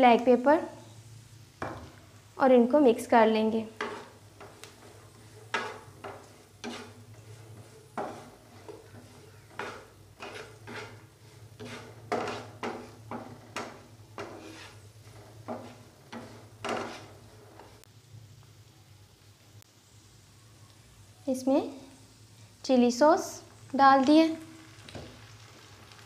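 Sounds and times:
wooden spatula scraping frying pan: 3.4 - 17.9.

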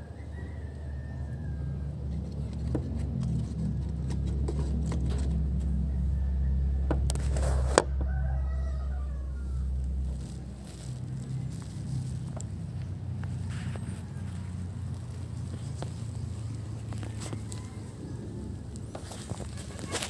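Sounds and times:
rooster crowing: 0.0 - 3.7, 4.5 - 11.6, 13.6 - 20.0
low rumble: 1.4 - 19.6
rockets rustling in cardboard box: 18.9 - 20.0.

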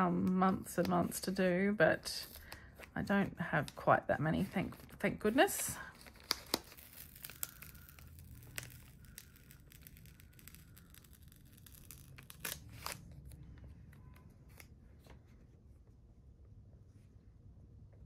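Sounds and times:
stickers peeled off backing sheet: 5.3 - 13.4.

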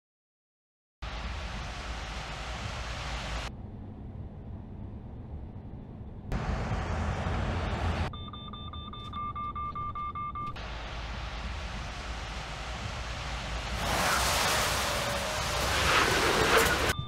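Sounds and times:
truck engine running: 3.5 - 8.2
rapid warning alarm beeps: 8.1 - 10.6
loud rushing noise: 10.7 - 17.0.

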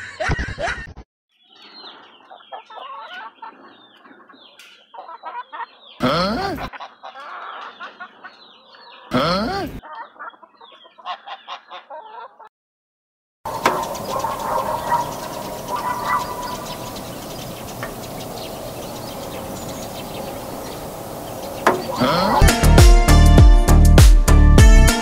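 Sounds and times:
chickens clucking: 1.5 - 12.5, 13.5 - 22.4
chicken calls rising and falling: 1.7 - 6.0, 6.6 - 9.2, 13.5 - 22.7.

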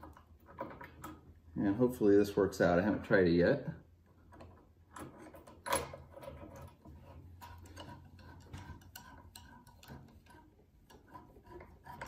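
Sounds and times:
screwdriver clicking and scraping: 4.3 - 12.0.

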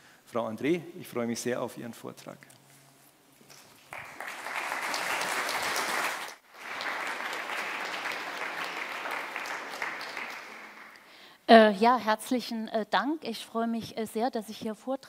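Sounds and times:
audience applauding: 3.6 - 11.1.

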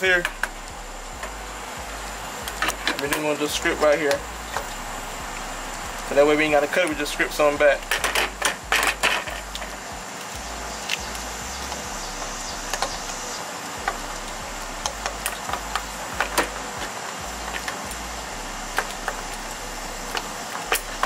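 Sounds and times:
steady background hiss: 0.0 - 21.0
wire strippers clicking: 7.8 - 18.1.

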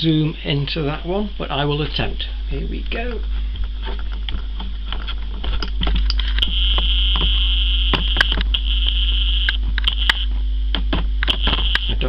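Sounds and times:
low hum: 0.0 - 12.0
camcorder zoom motor whining: 6.4 - 10.3, 11.2 - 12.0.

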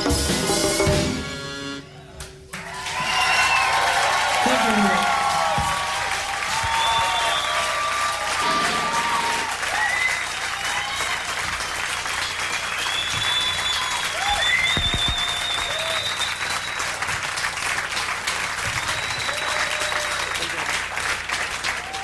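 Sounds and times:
audience clapping and cheering: 2.5 - 22.0
shouts from audience: 2.6 - 11.3, 13.4 - 16.2, 21.8 - 22.0
high whistles: 6.6 - 11.2, 12.1 - 17.1, 18.8 - 20.4.

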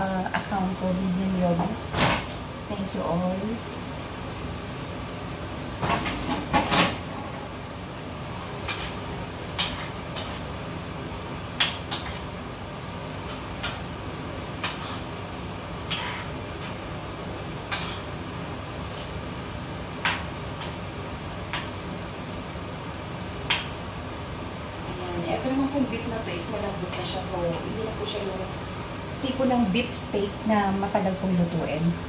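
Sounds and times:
utensil scraping a frying pan: 15.9 - 16.8.

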